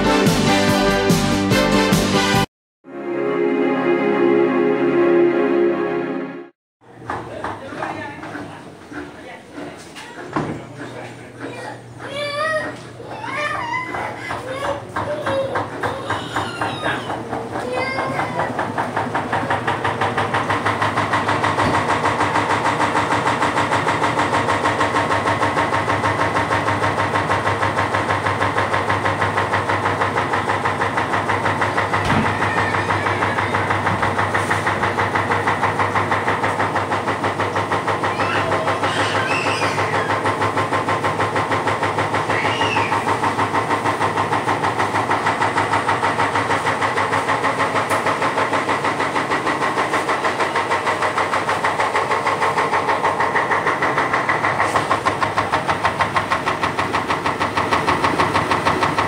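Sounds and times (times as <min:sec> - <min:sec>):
washing machine running: 0:00.0 - 0:02.5, 0:06.8 - 0:59.0
rapid knocking of shaking tub: 0:13.3 - 0:59.0.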